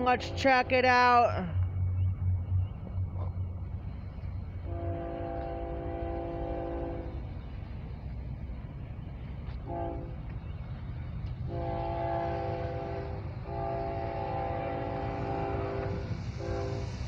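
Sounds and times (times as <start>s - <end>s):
train rumble: 0.0s - 17.0s
locomotive air horn: 4.6s - 7.2s, 9.6s - 10.2s, 11.5s - 16.9s.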